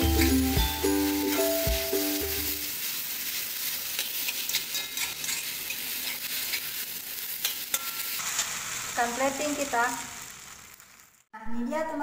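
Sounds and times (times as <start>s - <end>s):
background music: 0.0s - 2.5s
noodles sizzling in a wok: 0.0s - 11.3s
spatula scraping a wok: 2.7s - 8.8s.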